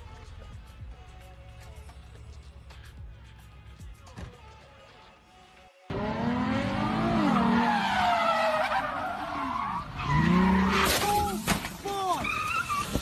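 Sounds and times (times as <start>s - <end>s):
car engine revving: 5.9s - 11.0s
tyres squealing: 6.6s - 13.0s.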